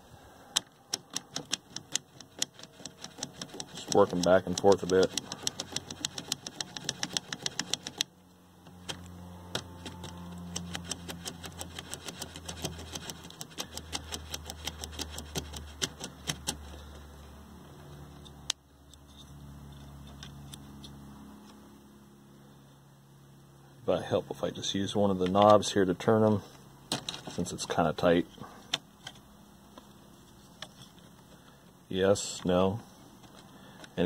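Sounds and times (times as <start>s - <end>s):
steady low hum: 0.0s - 34.0s
potentiometers clicking: 0.5s - 8.1s, 8.7s - 16.6s.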